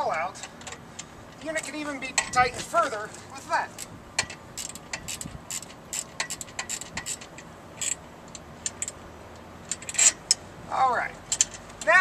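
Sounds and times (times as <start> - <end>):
wrench ratcheting metallic clicks: 3.8 - 9.0, 9.7 - 10.4, 11.3 - 12.0.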